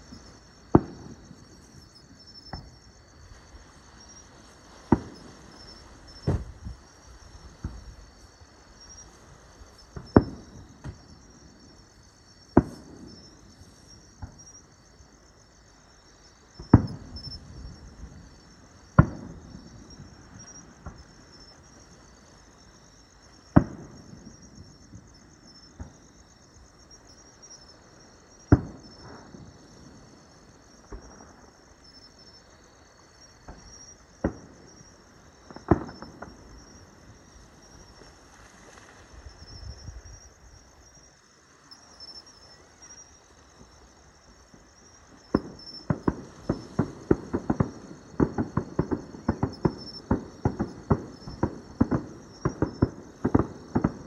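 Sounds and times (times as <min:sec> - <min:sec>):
faint firework pops: 0:00.0 - 0:11.2, 0:12.4 - 0:14.6, 0:16.6 - 0:17.8, 0:18.9 - 0:21.8, 0:23.4 - 0:26.1, 0:28.4 - 0:29.9, 0:30.7 - 0:32.0, 0:33.2 - 0:40.2, 0:44.5 - 0:54.0
fireworks bursting with loud bangs: 0:00.0 - 0:15.2, 0:16.3 - 0:41.0, 0:41.7 - 0:54.0
insects chirping: 0:00.0 - 0:54.0.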